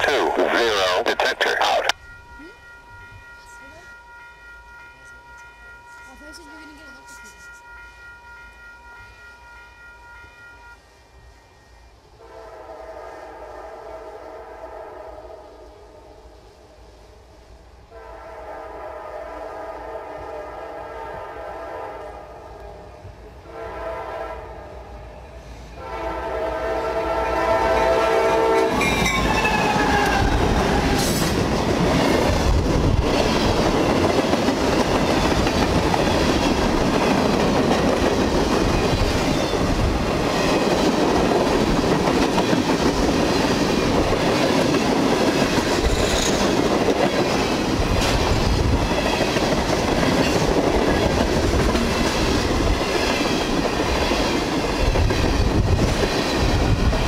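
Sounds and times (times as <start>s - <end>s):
locomotive air horn blasts: 12.2s - 15.6s, 17.9s - 22.5s, 23.5s - 24.8s, 25.8s - 31.1s
freight cars rumbling on rails: 27.4s - 57.0s.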